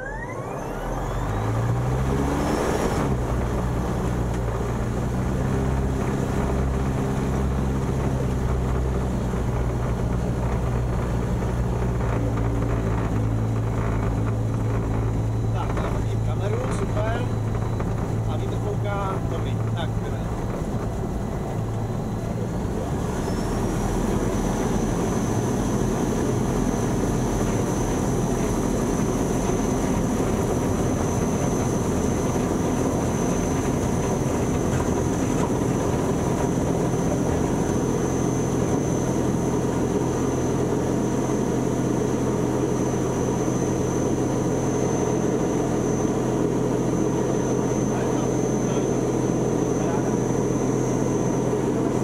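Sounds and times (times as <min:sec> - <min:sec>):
electric motor and propeller: 0:00.0 - 0:52.0
high steady whine: 0:00.0 - 0:52.0.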